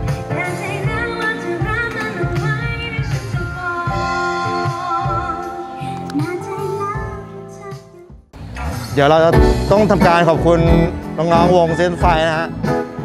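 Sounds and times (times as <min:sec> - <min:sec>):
guitar: 0:00.0 - 0:13.0
woman singing: 0:00.2 - 0:08.1.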